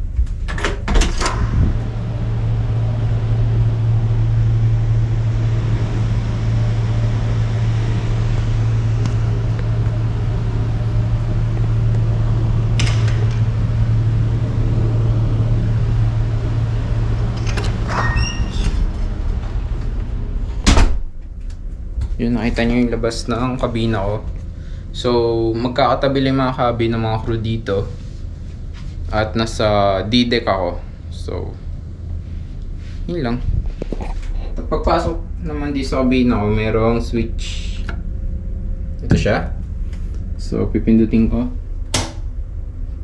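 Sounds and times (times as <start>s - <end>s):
low machinery and ventilation hum: 0.0s - 43.0s
door latch click and squeak: 17.4s - 18.8s
sharp click: 41.9s - 42.2s.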